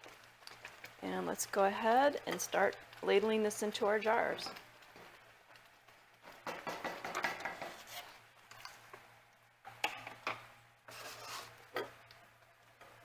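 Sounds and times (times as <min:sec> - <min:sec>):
rubbing on countertop: 0:07.4 - 0:08.2, 0:10.9 - 0:11.6.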